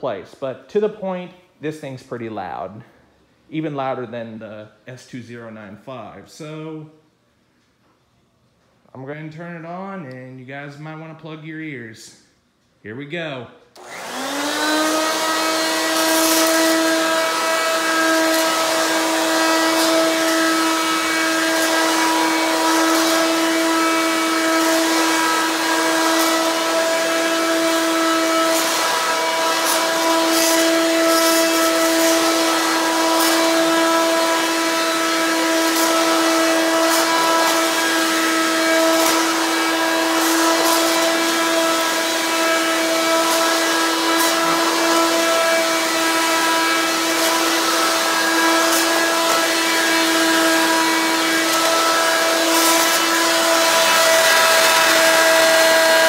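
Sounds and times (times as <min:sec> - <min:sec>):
stick vacuum whining: 0:13.8 - 0:56.0.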